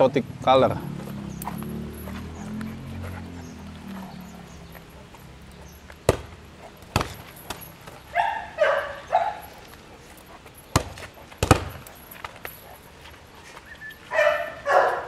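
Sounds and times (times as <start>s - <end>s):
sharp knocks: 6.0s - 7.7s, 10.7s - 11.8s
dog barking high-pitched: 8.1s - 9.6s, 14.1s - 15.0s.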